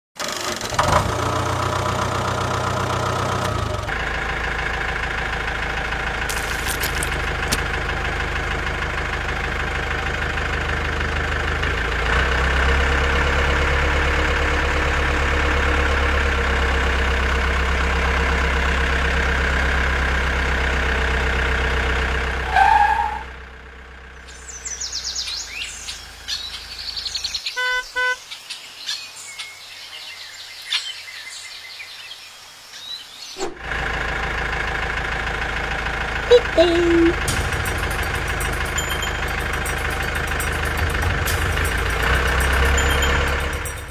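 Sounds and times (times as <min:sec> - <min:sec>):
toy tractor engine: 0:03.3 - 0:12.1, 0:33.9 - 0:43.9
birds chirping: 0:24.2 - 0:33.4.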